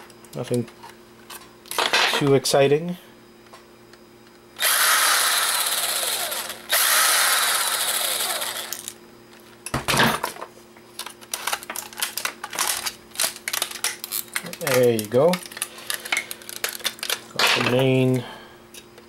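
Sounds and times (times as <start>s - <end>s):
cordless drill spinning: 4.6s - 8.9s.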